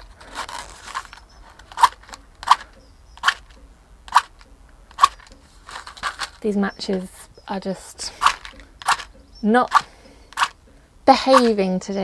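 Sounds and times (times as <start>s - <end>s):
matches scraping on matchbox: 0.0s - 3.5s, 8.1s - 9.1s, 11.2s - 11.6s.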